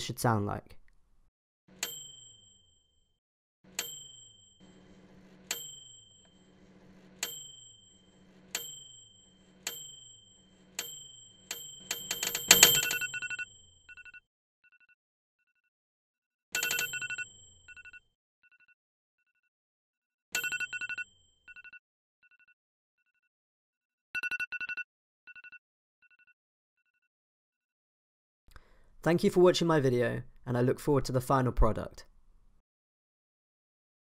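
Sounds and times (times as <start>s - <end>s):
microwave ping chimes: 1.7s - 2.6s, 3.7s - 13.6s
alarm clock beeping: 3.7s - 14.2s, 16.6s - 18.0s, 20.4s - 21.8s.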